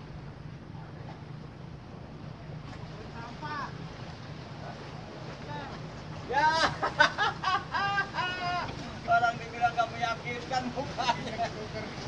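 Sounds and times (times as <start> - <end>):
wind and sea rumble: 0.0 - 12.0.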